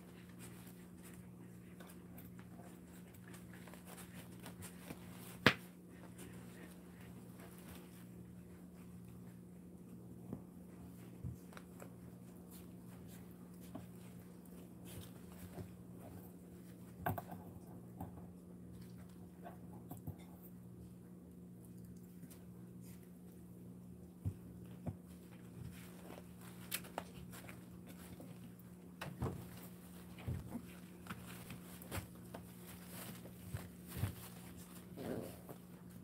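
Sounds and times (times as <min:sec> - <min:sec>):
puppy scratching on dog bed: 0:24.3 - 0:36.0.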